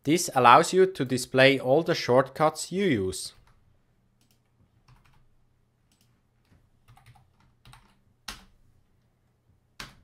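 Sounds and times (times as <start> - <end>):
keyboard keys clicking: 5.9 - 8.5.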